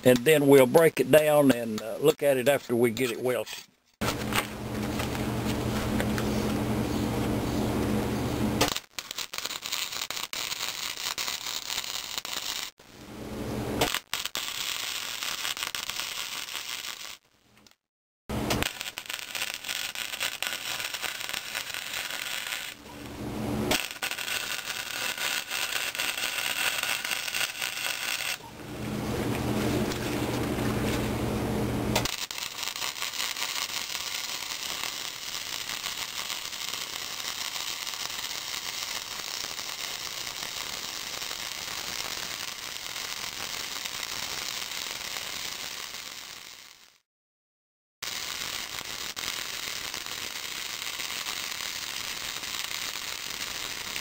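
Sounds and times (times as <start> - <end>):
welding arc crackling: 8.6 - 13.0, 13.8 - 28.4, 32.0 - 47.0, 48.0 - 54.0
welder low hum: 17.6 - 44.0.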